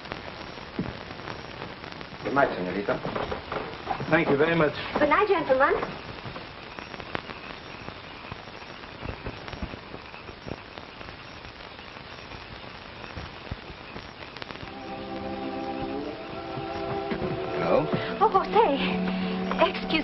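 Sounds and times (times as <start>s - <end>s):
film soundtrack hiss and crackle: 0.0s - 20.0s
held music notes: 14.6s - 20.0s.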